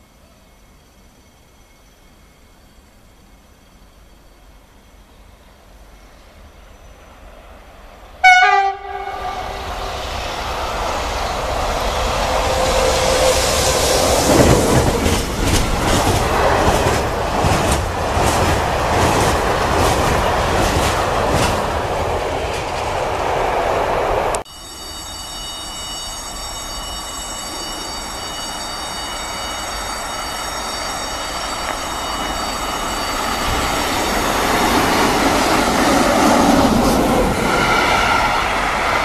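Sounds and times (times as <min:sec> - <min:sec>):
freight train rumble: 0:00.0 - 0:39.0
train horn blast: 0:08.2 - 0:10.0
wheels clacking over rail joints: 0:13.2 - 0:23.1.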